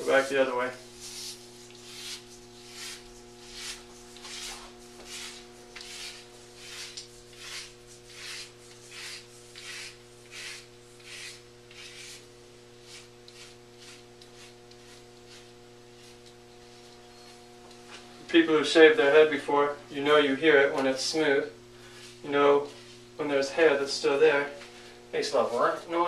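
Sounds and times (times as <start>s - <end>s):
razor scraping stubble: 0.0s - 18.0s.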